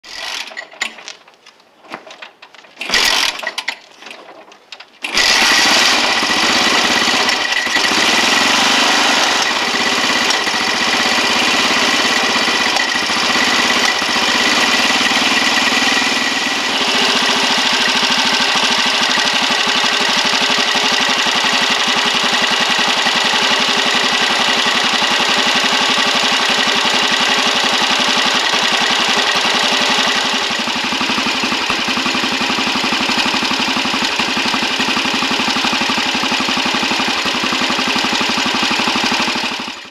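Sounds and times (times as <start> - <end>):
motorcycle engine kick-started: 0.1 - 1.2, 1.9 - 39.9.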